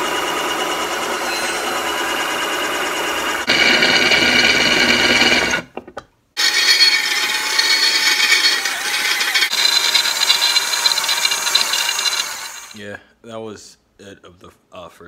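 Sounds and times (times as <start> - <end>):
cordless drill boring through metal: 0.0 - 5.6, 6.4 - 12.8.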